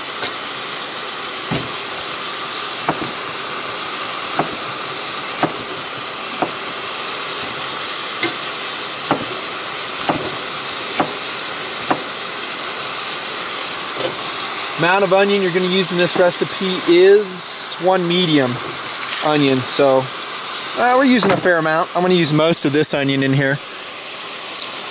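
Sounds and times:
meat sizzling in a pot: 0.0s - 24.9s
sharp knocks: 1.5s - 1.8s, 2.9s - 3.2s, 4.4s - 4.7s, 5.4s - 6.8s, 9.1s - 9.4s, 10.0s - 10.4s, 11.0s - 11.2s, 11.8s - 12.1s.

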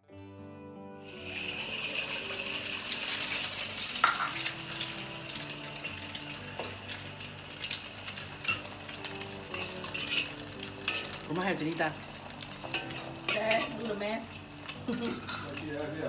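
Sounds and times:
egg sizzling in a wok: 1.0s - 16.0s
metal spatula clinking on wok: 8.2s - 8.7s, 9.5s - 11.2s, 12.6s - 13.9s.

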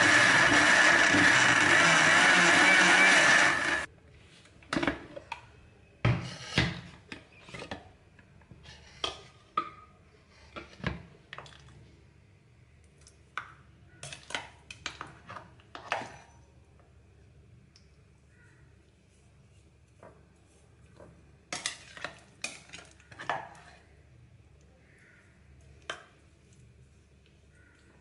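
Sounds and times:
mixer grinder motor: 0.0s - 3.9s.

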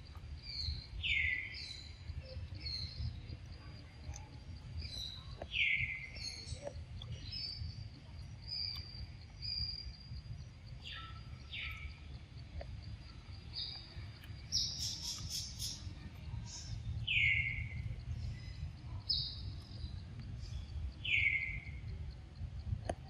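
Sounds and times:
steady low rumble: 0.0s - 23.0s
high bird chirps: 13.6s - 21.8s.

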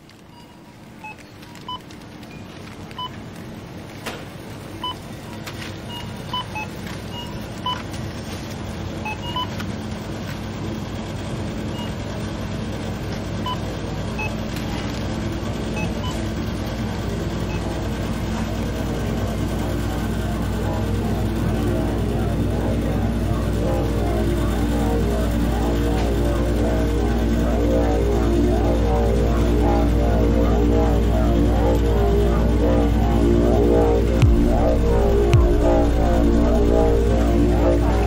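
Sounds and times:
low hum: 13.4s - 38.0s.

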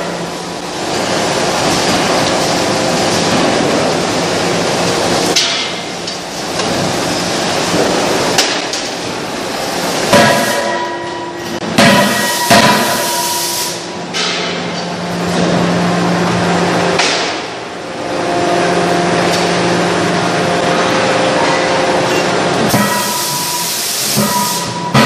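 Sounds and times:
factory machinery din: 0.0s - 25.0s
heavy ringing metal blows: 10.1s - 13.3s.

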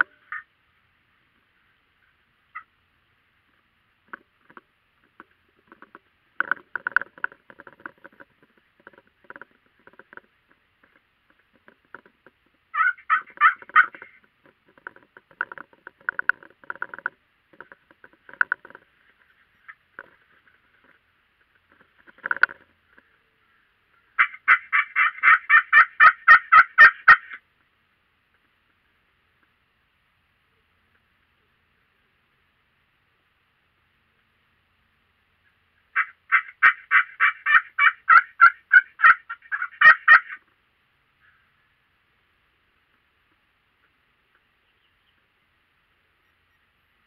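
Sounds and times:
turkey clucks and purrs: 0.0s - 0.5s, 2.0s - 2.8s, 3.5s - 27.5s, 35.4s - 40.5s
turkey rattling call: 0.0s - 0.5s, 12.7s - 18.8s, 22.0s - 27.4s, 35.4s - 40.5s
turkey yelps: 0.1s - 0.5s, 12.7s - 14.2s, 22.9s - 27.4s, 36.0s - 40.4s.

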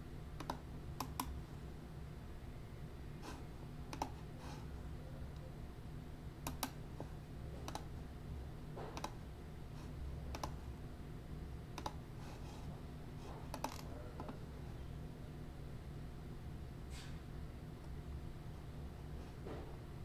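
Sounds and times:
low steady hum: 0.0s - 20.0s
keyboard and mouse clicks: 0.4s - 1.3s, 3.9s - 4.2s, 6.4s - 6.8s, 7.6s - 7.9s, 8.9s - 9.2s, 10.3s - 10.6s, 11.8s - 12.0s, 13.5s - 14.4s.

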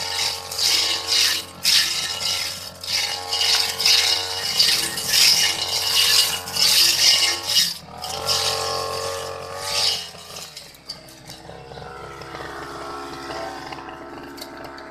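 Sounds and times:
blade swishing through grass: 0.0s - 11.4s
brush cutter engine revving: 0.0s - 14.9s.

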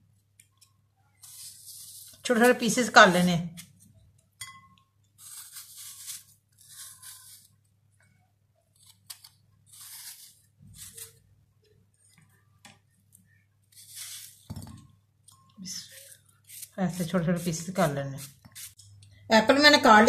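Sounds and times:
knife cutting apple: 0.5s - 3.9s, 5.2s - 7.7s, 8.7s - 11.3s, 13.7s - 14.8s, 15.6s - 18.8s.

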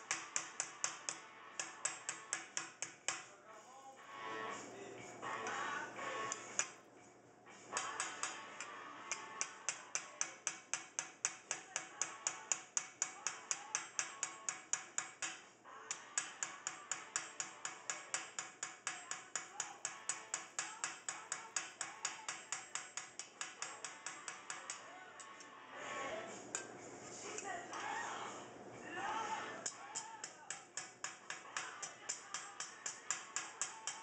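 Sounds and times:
small hammer tapping sheet metal: 0.0s - 3.3s, 6.3s - 6.8s, 7.7s - 25.4s, 29.6s - 34.0s.

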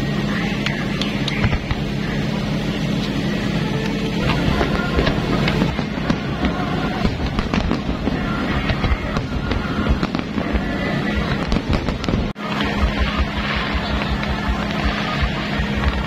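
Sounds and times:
firework shells bursting: 3.8s - 16.0s.

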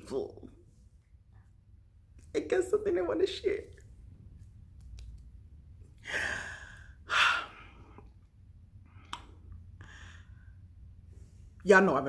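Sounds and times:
woman sighing breathily: 6.0s - 7.9s.

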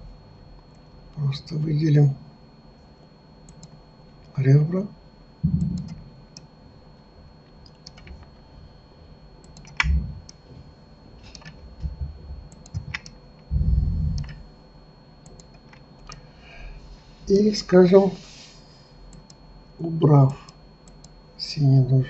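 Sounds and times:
keyboard and mouse clicking: 3.5s - 3.8s, 5.6s - 6.5s, 7.6s - 8.3s, 9.4s - 10.4s, 11.3s - 11.6s, 12.5s - 13.2s, 14.1s - 14.4s, 15.2s - 16.2s, 19.1s - 19.4s, 20.5s - 21.2s
low muffled thumps: 5.4s - 6.0s, 9.8s - 10.3s, 11.8s - 12.9s, 13.5s - 14.3s.

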